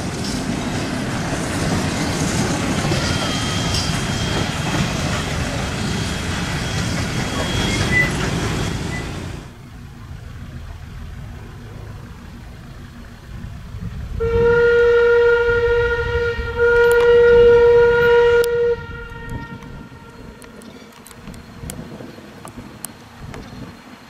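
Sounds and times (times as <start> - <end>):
train rumbling: 0.0 - 24.0
steam locomotive whistle blast: 2.9 - 9.5, 14.2 - 20.6.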